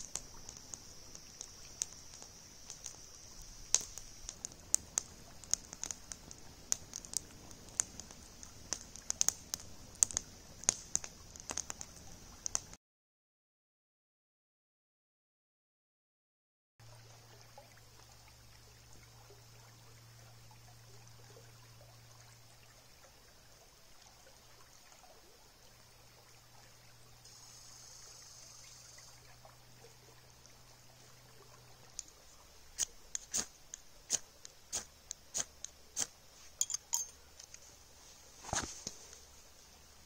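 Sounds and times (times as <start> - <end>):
river water trickling: 0.0 - 12.8, 16.8 - 40.0.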